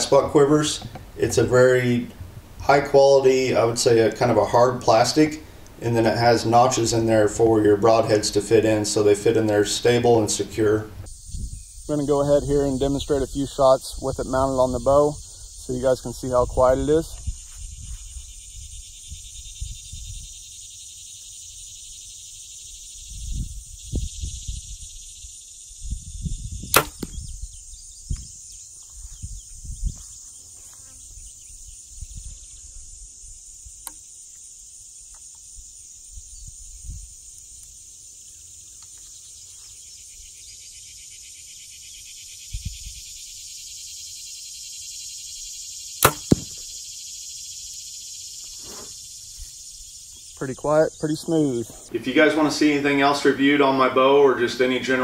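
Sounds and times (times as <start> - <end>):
insects chirring: 0.0 - 55.0
bow string snap: 26.7 - 27.2, 46.0 - 46.7.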